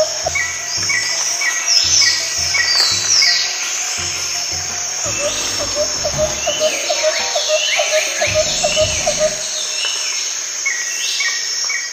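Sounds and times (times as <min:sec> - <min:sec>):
rapid repeating animal call: 0:00.0 - 0:09.5
bird chirps: 0:00.0 - 0:09.8
insect drone: 0:00.0 - 0:11.9.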